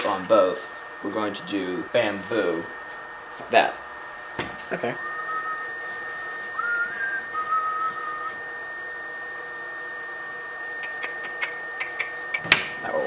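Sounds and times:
person whistling: 0:05.0 - 0:08.5.

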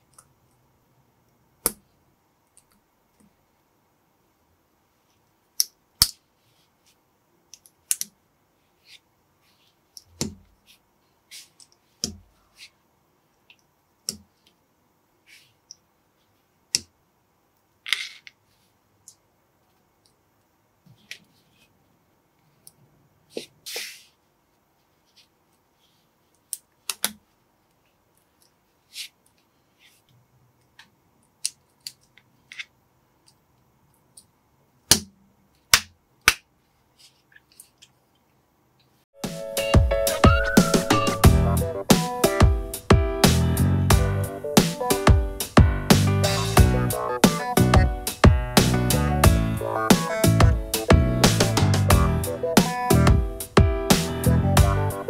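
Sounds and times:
plastic bricks snapping together: 0:35.7 - 0:36.5.

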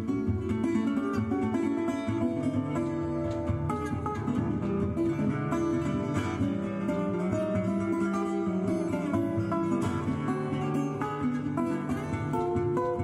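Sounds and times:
fingerpicked resonator guitar: 0:00.0 - 0:13.0.

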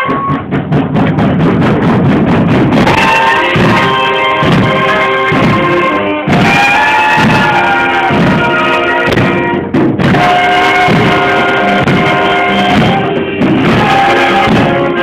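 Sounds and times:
drumline beating: 0:00.0 - 0:15.0
marching band playing: 0:00.0 - 0:15.0
brass section chords: 0:01.4 - 0:15.0.

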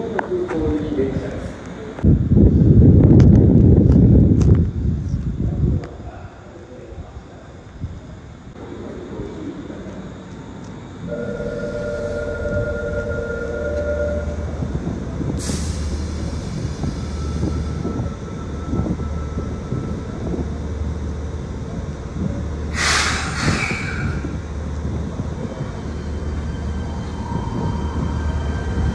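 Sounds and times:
subway train rumbling: 0:00.0 - 0:28.9
train horn: 0:11.1 - 0:14.7
air hissing: 0:15.3 - 0:18.2, 0:22.7 - 0:24.4.

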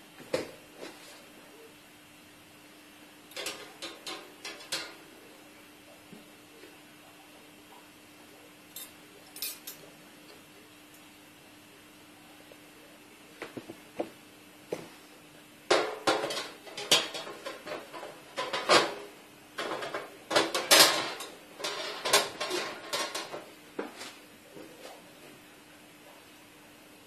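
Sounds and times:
metal grill parts clanking: 0:03.3 - 0:05.0, 0:15.7 - 0:23.4.

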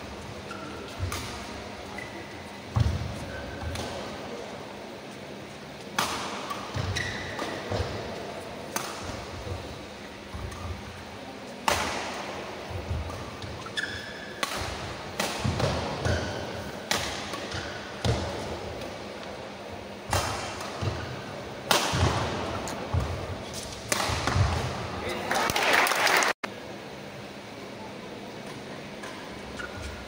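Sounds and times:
shoe squeaks: 0:00.4 - 0:01.0, 0:03.1 - 0:03.7, 0:06.5 - 0:07.8, 0:13.6 - 0:14.4, 0:29.4 - 0:30.0
rackets striking shuttlecock: 0:01.0 - 0:01.6, 0:08.7 - 0:09.3, 0:11.6 - 0:19.0, 0:20.0 - 0:24.7.

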